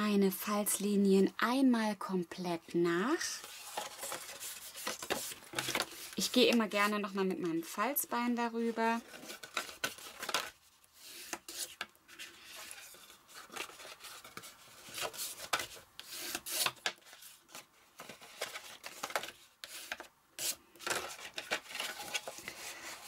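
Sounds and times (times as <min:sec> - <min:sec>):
bone folder scraping card: 0:03.4 - 0:06.2, 0:11.0 - 0:17.3, 0:18.0 - 0:23.0.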